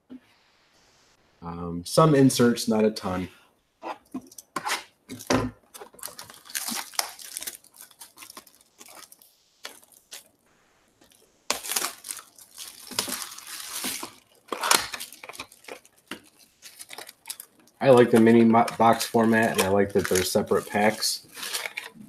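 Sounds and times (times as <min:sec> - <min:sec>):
plastic shrink wrap crackling: 0:05.1 - 0:10.4, 0:11.0 - 0:22.0.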